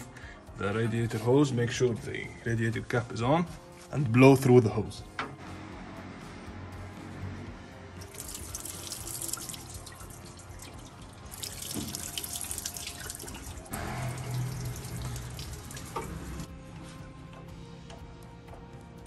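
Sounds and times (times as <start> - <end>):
water gushing and splashing: 8.0 - 16.5.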